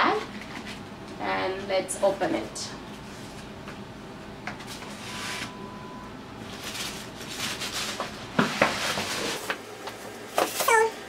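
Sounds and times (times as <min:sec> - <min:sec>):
paper bag rustling: 0:06.4 - 0:09.5.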